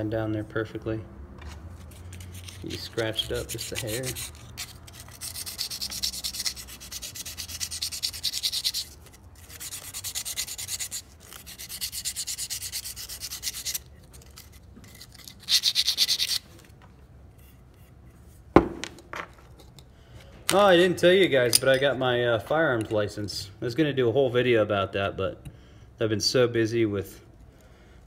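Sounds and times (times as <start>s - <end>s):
rubbing metal shaft by hand: 1.8s - 16.5s.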